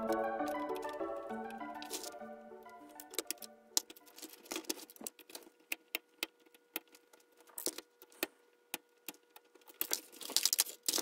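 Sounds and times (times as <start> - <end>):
screwdriver and plastic parts clicking: 2.8 - 11.0.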